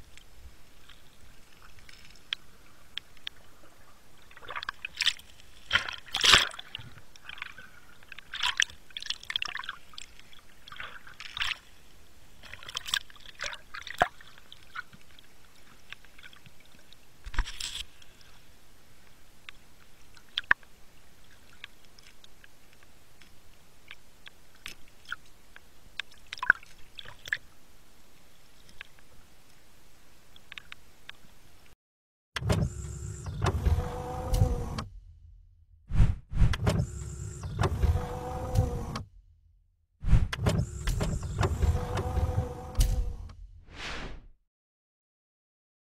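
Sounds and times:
sharp clicks underwater: 0:20.2 - 0:20.7.

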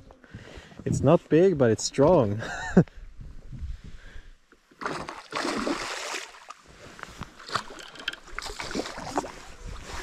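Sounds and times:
fish splashing in water: 0:04.8 - 0:06.6, 0:07.5 - 0:09.5.

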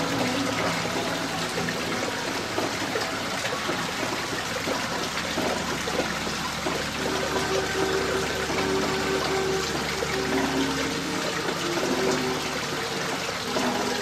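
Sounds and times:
faint music: 0:00.0 - 0:14.0
water trickling and splashing: 0:00.0 - 0:14.0.

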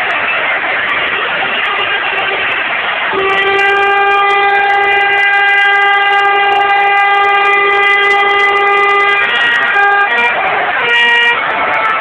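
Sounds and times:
stadium crowd noise: 0:00.0 - 0:12.0
air horn long note: 0:03.0 - 0:12.0.

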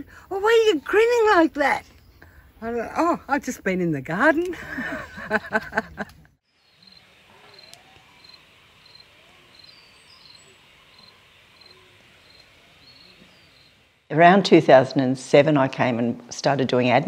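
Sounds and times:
faint garden ambience: 0:00.0 - 0:17.0
woman laughing: 0:04.5 - 0:06.3
insect chirping: 0:06.5 - 0:14.0.

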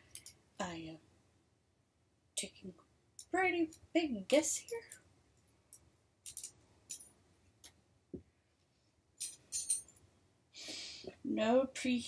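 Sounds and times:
metal parts clinking: 0:05.7 - 0:07.1.

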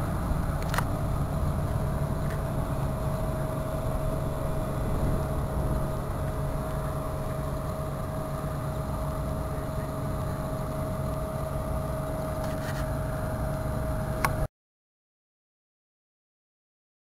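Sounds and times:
engine hum with whine: 0:00.0 - 0:14.5.

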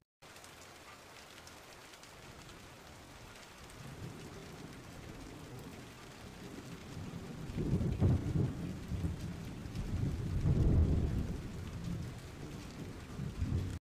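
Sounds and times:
rain falling: 0:00.2 - 0:13.8
thunder rumbling: 0:03.7 - 0:13.8.

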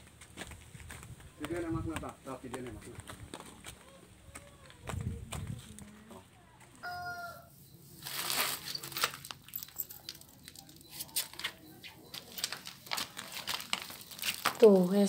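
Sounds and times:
phone rustling and crackling: 0:08.0 - 0:14.7.

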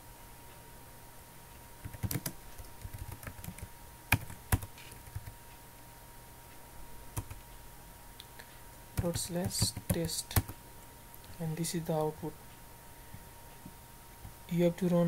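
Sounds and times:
keyboard typing: 0:01.8 - 0:05.4, 0:07.2 - 0:07.4, 0:09.0 - 0:10.6.

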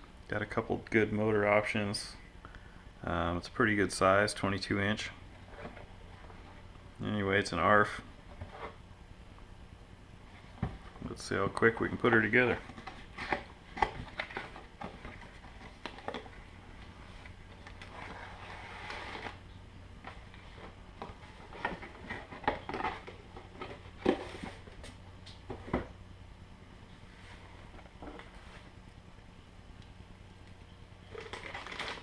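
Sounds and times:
soft plastic rustle: 0:31.1 - 0:32.0.

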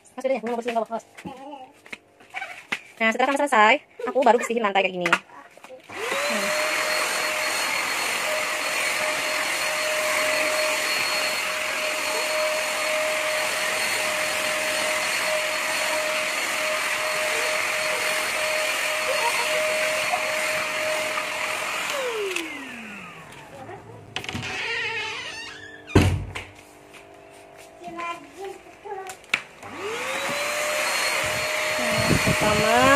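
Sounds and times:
floor nozzle sweeping tiled floor: 0:05.9 - 0:23.7, 0:26.6 - 0:28.6, 0:29.6 - 0:32.9
vacuum cleaner motor whining: 0:05.9 - 0:26.2, 0:29.4 - 0:32.9.

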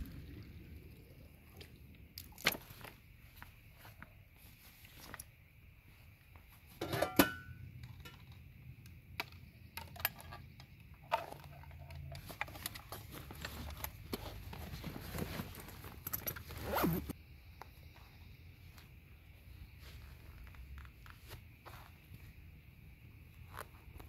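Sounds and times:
backpack rustling and clinking: 0:11.0 - 0:17.2
zipper drawn: 0:16.4 - 0:17.1.

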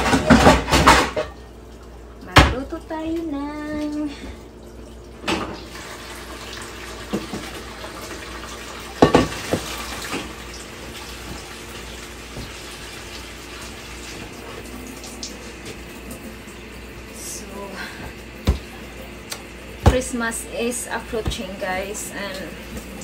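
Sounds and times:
kitchen faucet running: 0:00.0 - 0:23.0
cookware clanking: 0:09.0 - 0:09.7.

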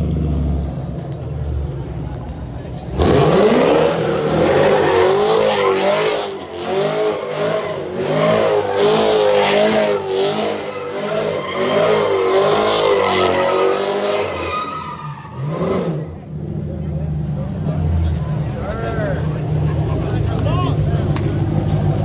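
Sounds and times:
tires screeching: 0:00.0 - 0:22.0
car engine at high revs: 0:02.9 - 0:14.5, 0:15.2 - 0:18.2.

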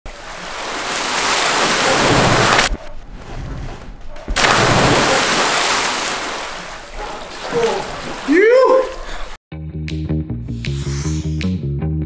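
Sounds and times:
pool water splashing: 0:00.1 - 0:02.8, 0:04.4 - 0:09.4
person plunging into pool: 0:00.1 - 0:09.2.

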